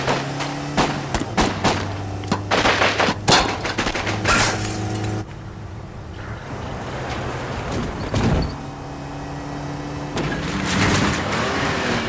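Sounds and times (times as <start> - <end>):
rapid gunfire: 2.5 - 4.4.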